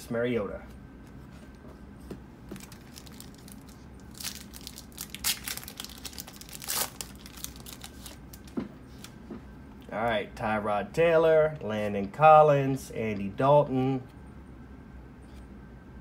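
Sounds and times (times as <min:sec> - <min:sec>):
foil wrapper tearing and crinkling: 0:02.6 - 0:08.6.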